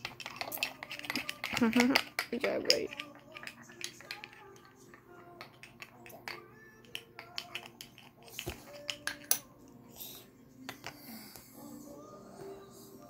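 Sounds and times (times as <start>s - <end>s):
toy spoons clicking on cups: 0.0s - 9.5s, 10.6s - 11.1s
faint background music: 0.0s - 13.0s.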